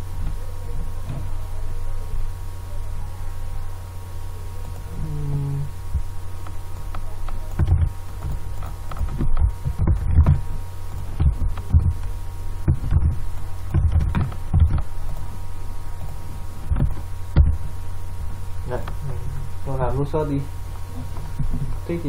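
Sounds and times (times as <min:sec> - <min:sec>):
low electrical hum: 0:00.0 - 0:22.0
keystroke and mouse click thumps: 0:11.0 - 0:14.9.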